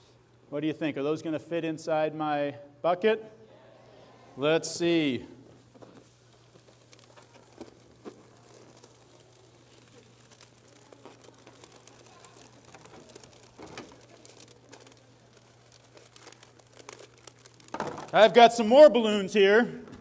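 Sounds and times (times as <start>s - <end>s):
balloons rubbing and squeaking: 5.5s - 18.7s.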